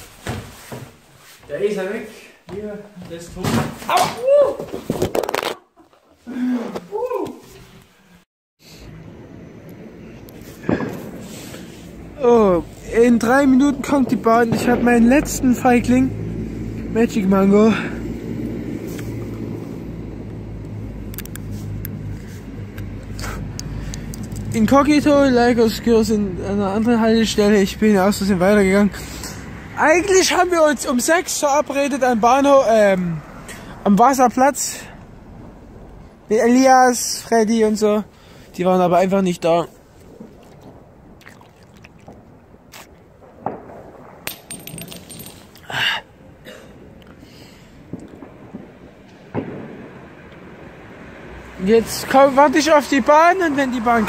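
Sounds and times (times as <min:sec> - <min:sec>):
traffic engine rumble: 0:08.6 - 0:54.0
light clinks: 0:44.3 - 0:45.8.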